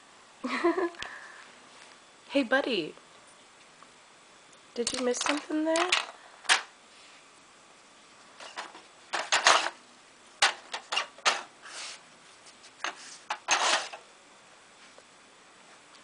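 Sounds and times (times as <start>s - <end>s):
plastic sliding scrapes: 12.8s - 14.0s.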